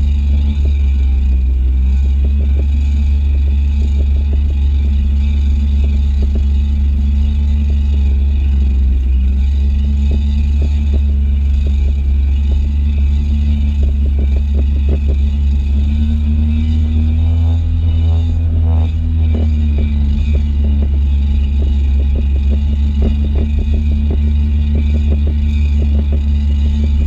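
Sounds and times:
jet ski engine droning: 0:00.0 - 0:27.0.

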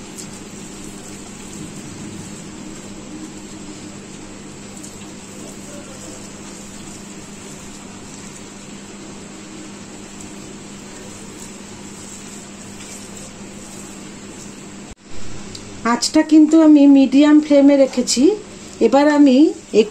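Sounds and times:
gas stove burner hissing: 0:00.0 - 0:19.9
low hum: 0:00.6 - 0:05.4, 0:13.3 - 0:17.6.

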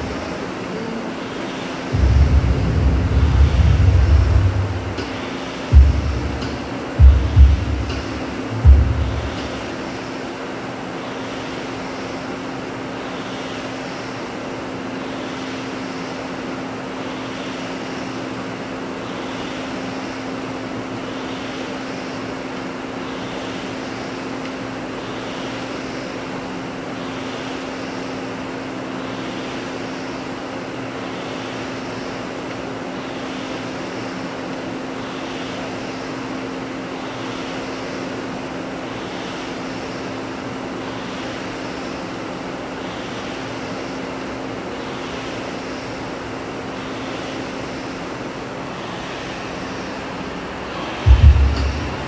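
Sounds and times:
rowing machine flywheel whooshing: 0:00.0 - 0:16.2
steady hum: 0:00.0 - 0:52.0
loud low thumps: 0:01.9 - 0:09.7, 0:51.0 - 0:52.0.

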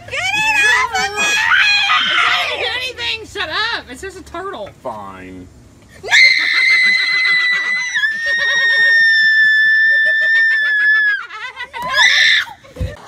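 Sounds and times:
girl screaming in fright: 0:06.1 - 0:11.2, 0:11.9 - 0:12.6
people laughing: 0:06.1 - 0:13.0.

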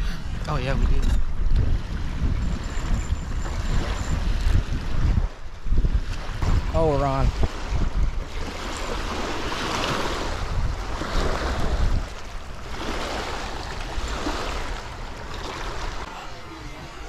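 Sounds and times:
wind buffeting microphone: 0:00.0 - 0:16.1
water washing against bank: 0:03.3 - 0:16.2.

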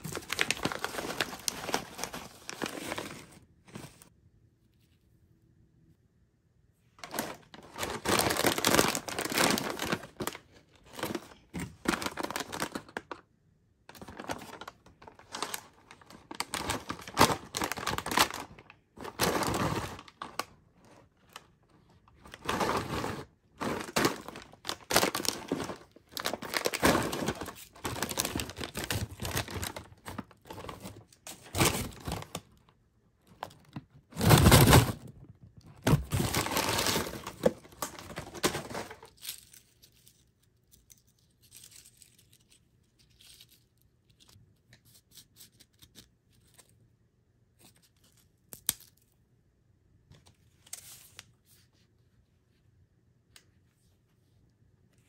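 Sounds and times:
foil snack bag crinkling: 0:00.0 - 0:03.9, 0:07.0 - 0:13.2, 0:13.9 - 0:20.6, 0:22.1 - 0:32.4, 0:35.8 - 0:43.6.

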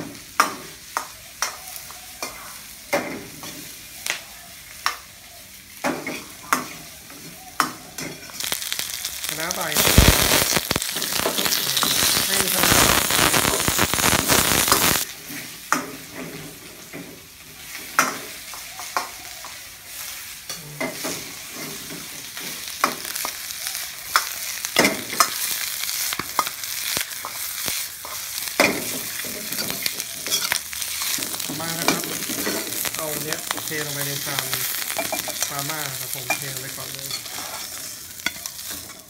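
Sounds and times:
oil sizzling in a wok: 0:00.0 - 0:39.0
ladle clinking and scraping wok: 0:28.0 - 0:39.0.

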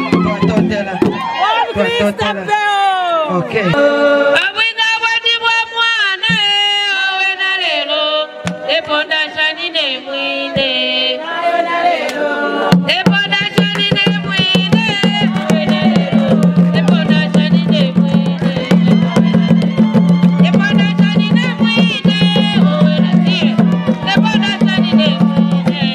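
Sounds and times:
hand drums fast beat: 0:00.0 - 0:01.3, 0:12.7 - 0:25.9
people singing: 0:03.6 - 0:25.9.

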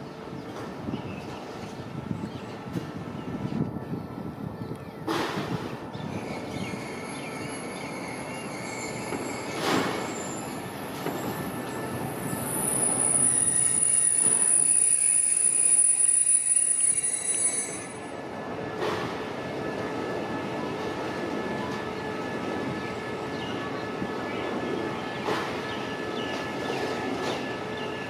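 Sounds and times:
steel wheels squealing: 0:06.2 - 0:18.2.

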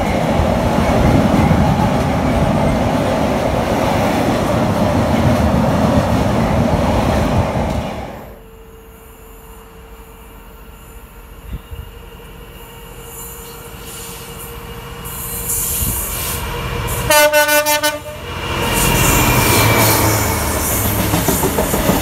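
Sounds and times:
diesel locomotive approaching: 0:00.0 - 0:22.0
train wheels on rails: 0:00.0 - 0:22.0
locomotive horn: 0:17.0 - 0:18.4.

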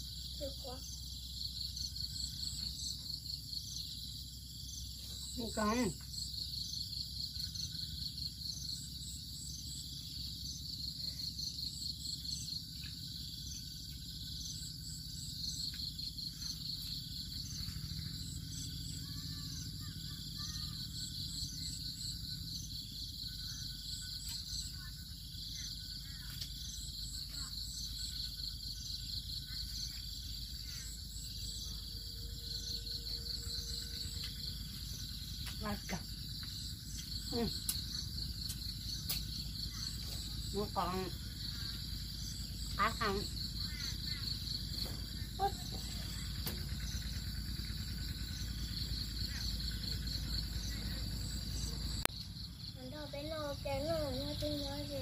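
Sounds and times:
insects chirping: 0:00.0 - 0:55.0
low background hum: 0:00.0 - 0:55.0.

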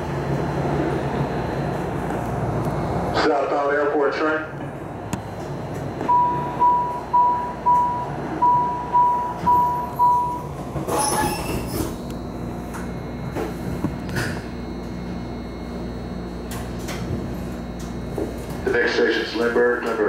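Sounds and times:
low hum of stopped train: 0:00.0 - 0:20.0
high door warning beeps: 0:06.0 - 0:17.0.

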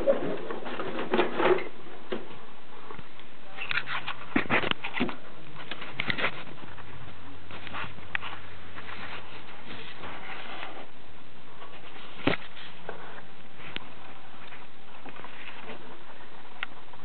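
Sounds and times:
handling clicks and rustles: 0:00.0 - 0:10.9
faint low hum: 0:00.0 - 0:17.0.

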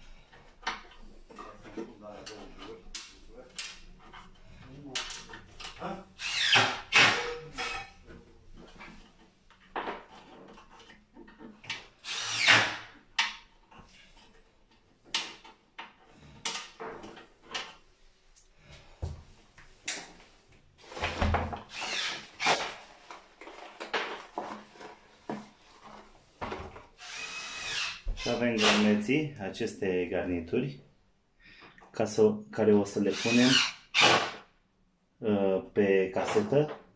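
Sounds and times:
cordless drill bursts: 0:06.2 - 0:07.8, 0:12.0 - 0:12.8, 0:21.7 - 0:22.6, 0:27.0 - 0:28.9, 0:33.1 - 0:34.4.

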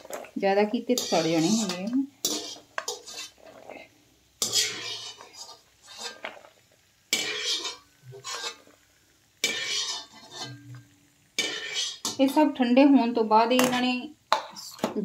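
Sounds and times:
wire skimmer scraping a metal pan: 0:00.9 - 0:06.5, 0:07.1 - 0:08.7, 0:09.4 - 0:10.8, 0:11.4 - 0:12.2.

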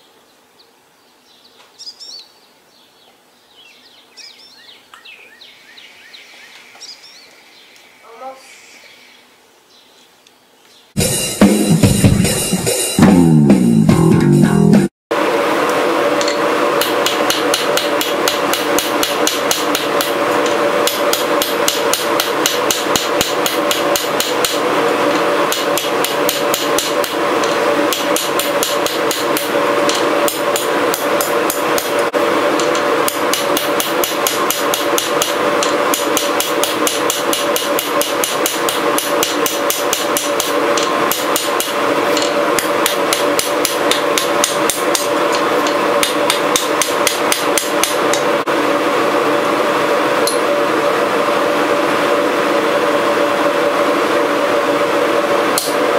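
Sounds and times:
intro music: 0:11.0 - 0:14.9
hammer striking steel on anvil: 0:16.2 - 0:24.6, 0:25.5 - 0:32.0, 0:32.6 - 0:48.2.

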